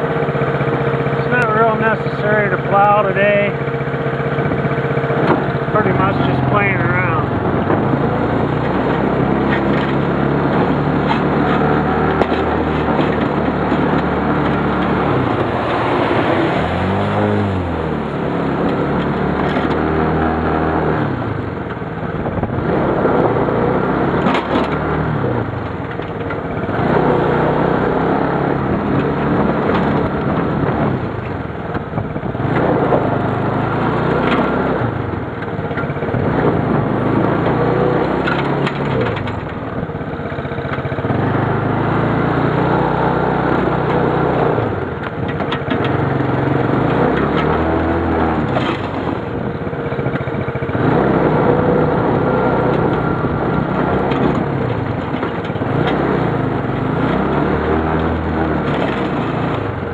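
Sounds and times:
plow blade scraping snow and gravel: 0.0s - 21.7s, 22.6s - 59.9s
quad bike engine revving: 0.0s - 59.9s.

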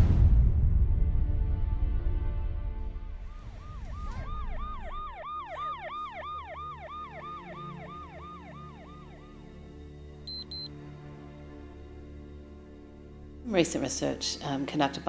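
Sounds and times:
soft background music: 0.9s - 15.0s
electronic warbling alarm: 3.6s - 9.4s.

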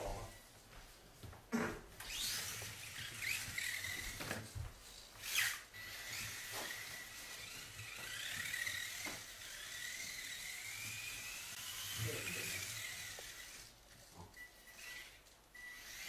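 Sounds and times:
faint steady high tone: 0.0s - 0.5s, 14.2s - 15.9s
small electric motors whining: 2.0s - 16.0s.

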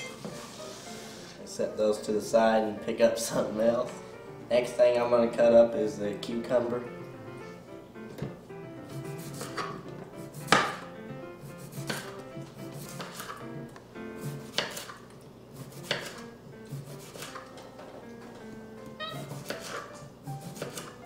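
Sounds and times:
soft background music: 0.0s - 21.0s
knife chopping on wooden board: 8.9s - 9.8s, 10.4s - 10.8s, 11.4s - 12.2s, 12.8s - 13.4s, 14.2s - 15.0s, 15.6s - 17.4s, 19.2s - 21.0s.

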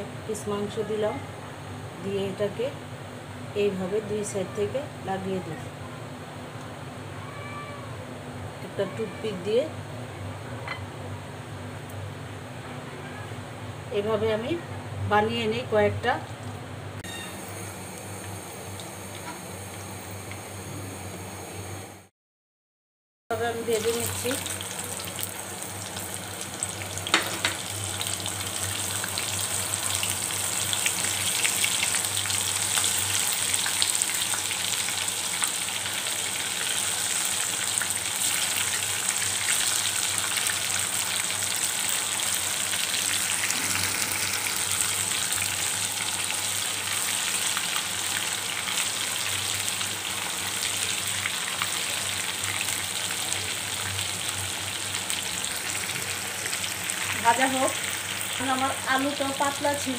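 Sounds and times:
deep-frying sizzle: 15.5s - 22.1s, 23.4s - 59.9s.

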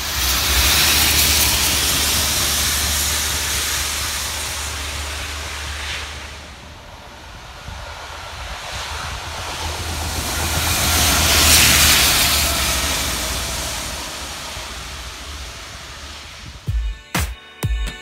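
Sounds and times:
diesel engine droning: 0.0s - 16.7s.

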